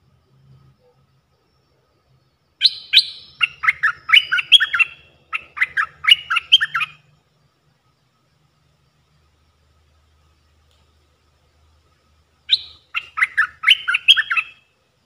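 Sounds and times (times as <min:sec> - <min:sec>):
bird whistled song: 0:02.5 - 0:07.2, 0:12.4 - 0:14.7.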